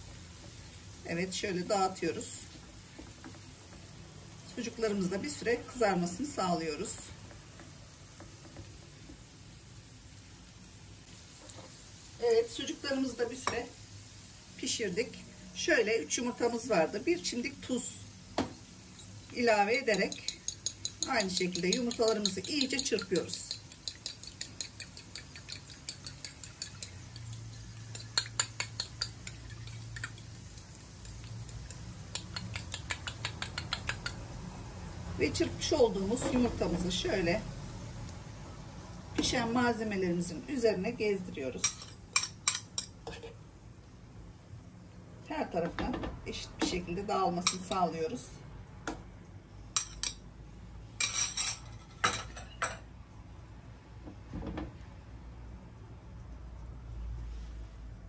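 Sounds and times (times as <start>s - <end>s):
fork clinking against ceramic bowl: 19.9s - 29.4s.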